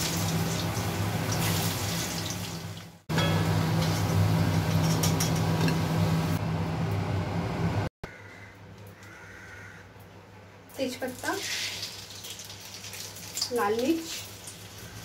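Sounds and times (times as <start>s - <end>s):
potatoes sizzling in hot oil: 0.0s - 4.8s, 10.8s - 15.0s
low hum: 3.1s - 7.9s.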